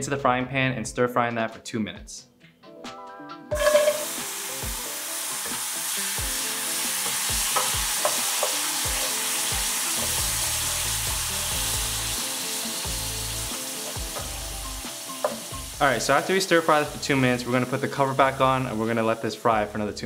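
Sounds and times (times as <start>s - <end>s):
food sizzling in hot oil: 3.5s - 19.5s
wooden spatula stir-frying: 3.6s - 19.1s.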